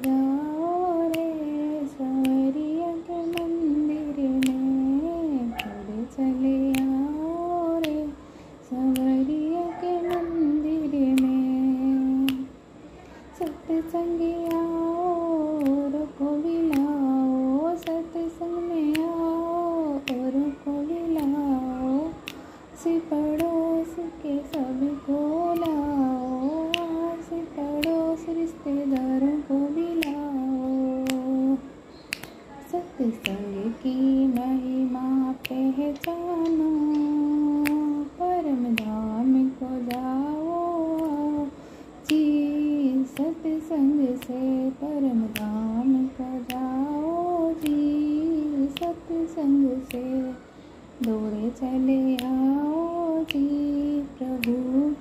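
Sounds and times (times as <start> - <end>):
sharp click-like beat: 0.0 - 12.7, 13.4 - 50.2, 51.0 - 54.9
sharp rhythmic taps: 0.0 - 12.8, 13.4 - 55.0
woman singing devotional song: 0.0 - 55.0.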